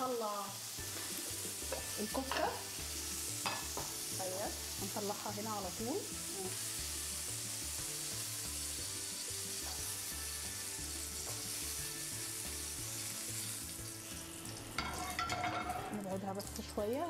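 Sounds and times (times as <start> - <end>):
oil sizzling in a frying pan: 0.0 - 17.0
utensil clinking on dish: 14.8 - 16.0.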